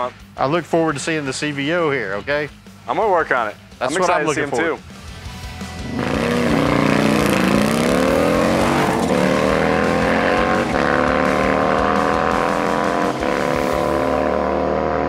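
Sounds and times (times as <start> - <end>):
motorcycle engine accelerating: 5.6 - 15.0.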